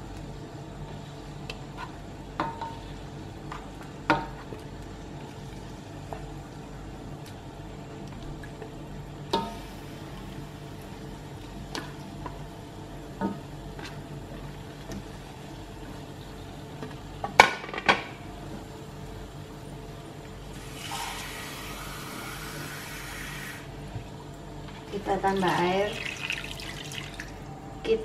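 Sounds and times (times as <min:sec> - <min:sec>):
running water: 0:25.2 - 0:27.4.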